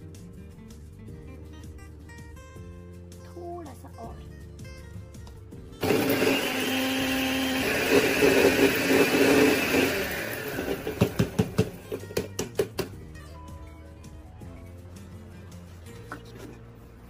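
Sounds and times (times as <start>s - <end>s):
mixer grinder motor running: 5.8s - 12.3s.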